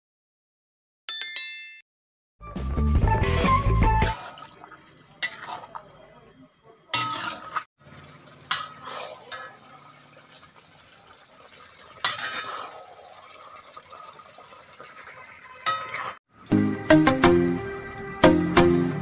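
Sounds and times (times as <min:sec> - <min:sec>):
metal spatula scraping a wok: 0:05.2 - 0:05.8, 0:06.9 - 0:07.7, 0:08.5 - 0:09.6, 0:12.0 - 0:12.8, 0:15.6 - 0:16.2.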